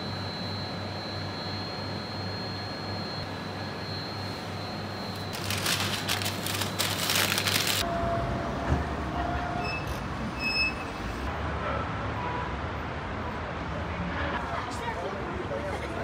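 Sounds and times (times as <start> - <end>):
shop hum: 0.0 - 11.4
loud crackling rustle: 5.2 - 7.8.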